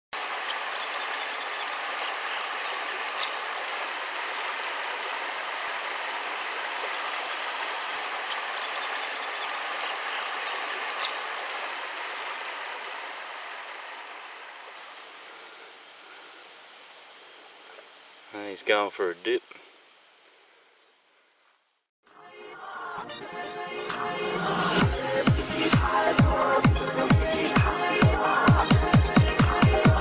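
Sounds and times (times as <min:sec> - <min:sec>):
river water running over rocks: 0:00.2 - 0:20.4, 0:24.7 - 0:28.2.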